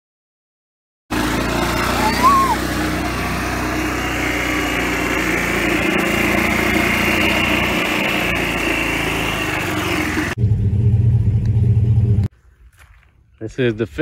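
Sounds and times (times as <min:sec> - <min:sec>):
small engine running with whine: 0:01.1 - 0:12.3
deep low rumble: 0:10.4 - 0:12.3.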